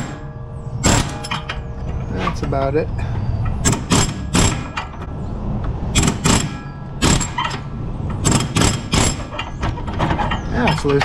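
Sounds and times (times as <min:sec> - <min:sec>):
pneumatic air hammer bursts: 0:00.8 - 0:01.4, 0:03.6 - 0:04.9, 0:05.9 - 0:07.6, 0:08.2 - 0:09.5.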